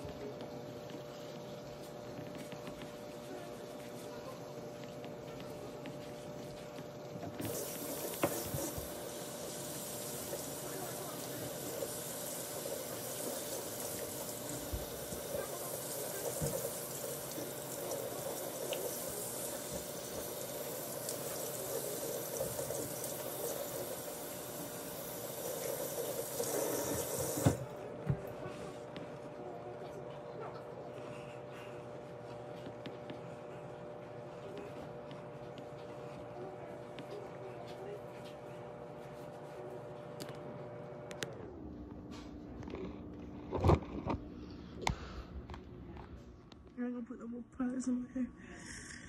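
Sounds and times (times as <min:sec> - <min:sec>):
faucet running into sink: 0:07.2 - 0:27.7.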